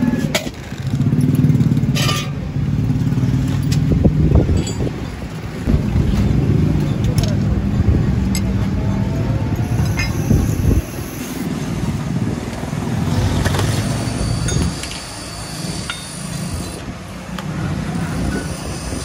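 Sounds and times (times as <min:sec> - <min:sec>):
street traffic rumble: 0:00.0 - 0:19.0
metal parts clinking: 0:04.5 - 0:04.9, 0:13.4 - 0:16.8.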